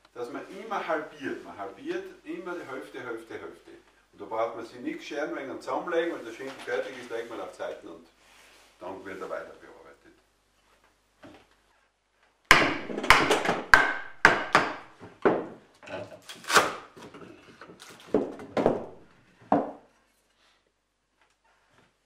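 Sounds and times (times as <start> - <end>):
wooden knocks and cracking: 12.5 - 15.6, 17.0 - 19.8.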